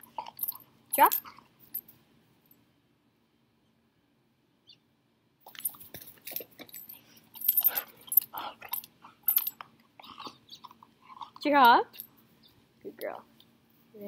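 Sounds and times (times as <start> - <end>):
dog chewing a ball: 7.6 - 11.5.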